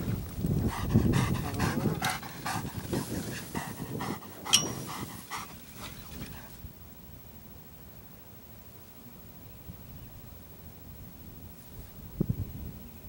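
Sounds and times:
dog panting: 0:00.6 - 0:06.5.

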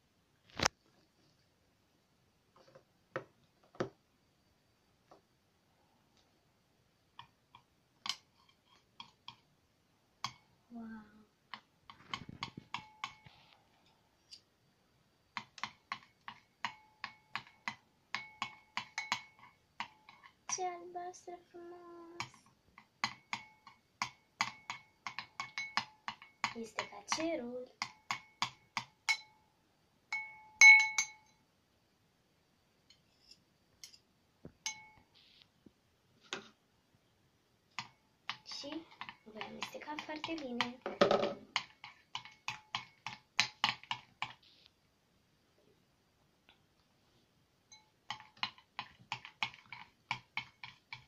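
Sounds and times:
metal spoons clinking on glass bowl: 0:15.9 - 0:20.6, 0:23.0 - 0:29.4, 0:30.1 - 0:31.4, 0:34.6 - 0:35.1, 0:41.6 - 0:44.0, 0:47.7 - 0:51.0.

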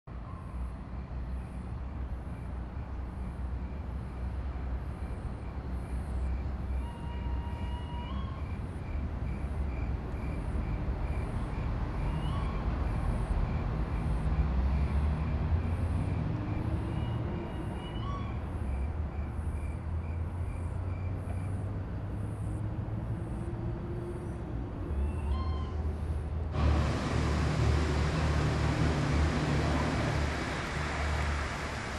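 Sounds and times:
steady low rumble: 0:26.4 - 0:31.9.

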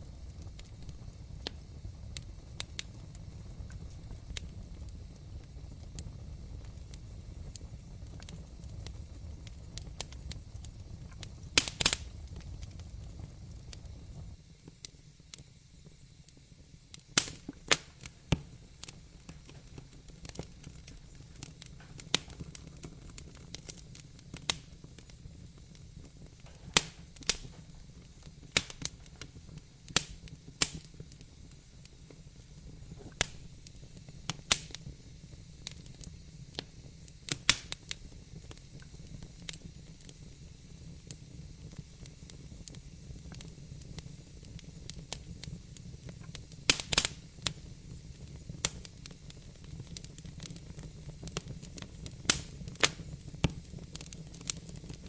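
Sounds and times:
low steady rumble: 0:00.0 - 0:14.4
wood fire crackling: 0:00.0 - 0:55.0.

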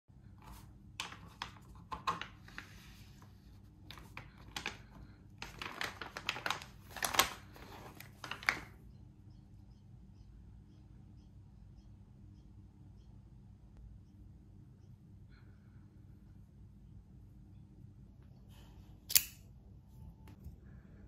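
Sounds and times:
plastic bag crinkling: 0:03.8 - 0:08.8.

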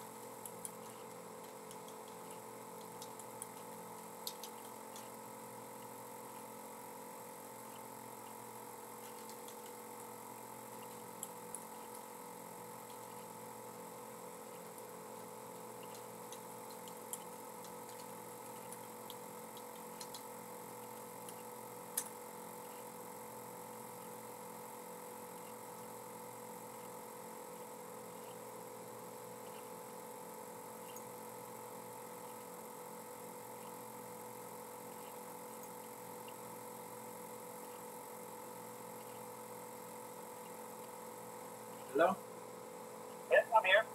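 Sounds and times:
faint steady hum: 0:00.0 - 0:43.9
keyboard and mouse clicks: 0:00.2 - 0:05.2, 0:09.0 - 0:10.1, 0:15.8 - 0:22.8.

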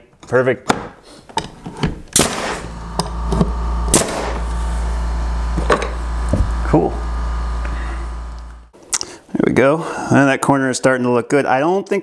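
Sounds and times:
nail gun shots: 0:02.1 - 0:02.8, 0:03.9 - 0:04.5
air compressor humming: 0:02.2 - 0:08.8.

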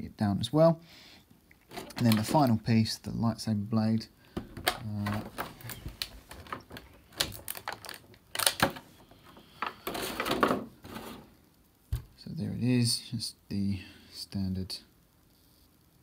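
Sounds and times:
plastic blister packaging clicking: 0:01.6 - 0:02.4, 0:04.4 - 0:08.9.

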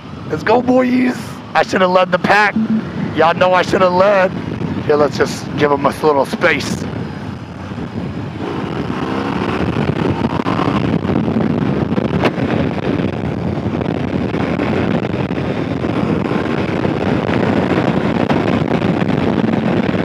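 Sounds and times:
wind buffeting on microphone: 0:03.0 - 0:05.6, 0:06.6 - 0:20.0
motorcycle engine accelerating hard: 0:07.0 - 0:20.0.

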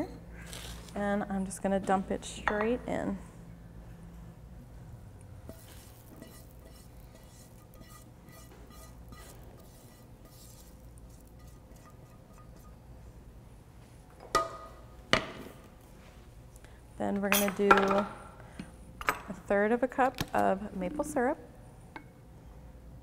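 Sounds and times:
spatula scraping skillet: 0:05.5 - 0:12.8.

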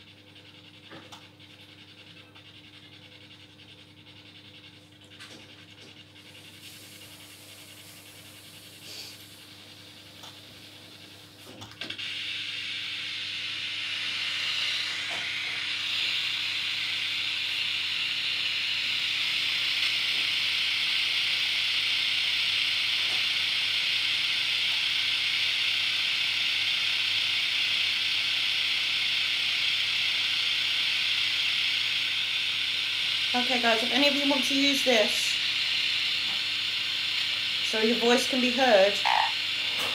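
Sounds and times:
static hiss: 0:06.4 - 0:09.4, 0:23.8 - 0:39.9
faint hum: 0:28.4 - 0:39.9.

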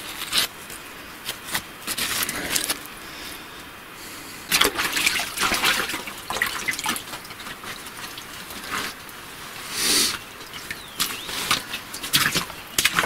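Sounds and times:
hands squelching in wet mud: 0:04.5 - 0:09.1.

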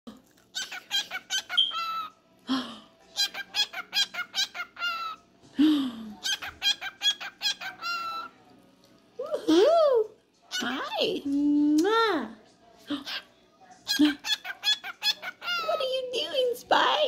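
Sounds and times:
cockatiel chirping and whistling: 0:00.6 - 0:02.1.

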